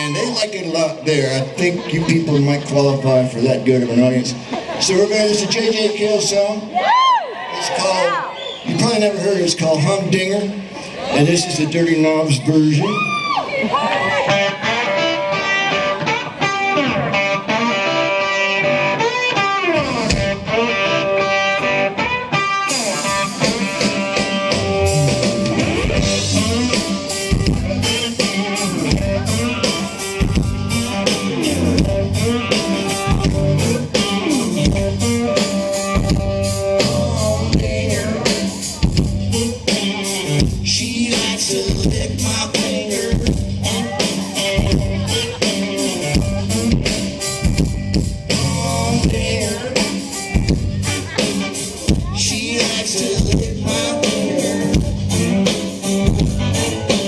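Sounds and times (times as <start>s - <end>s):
live band playing: 0.0s - 57.0s
electric guitars bending notes: 13.8s - 57.0s
drum kit: 14.4s - 57.0s.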